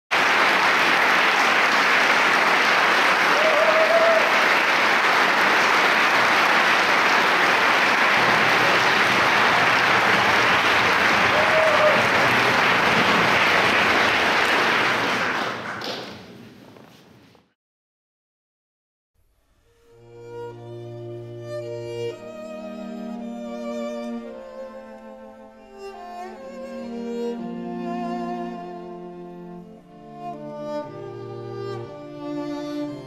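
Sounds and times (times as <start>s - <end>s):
audience applauding: 0.1s - 16.6s.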